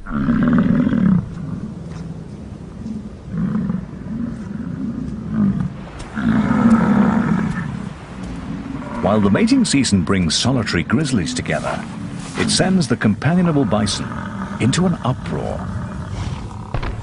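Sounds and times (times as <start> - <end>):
bison bellowing: 3.3 - 16.8.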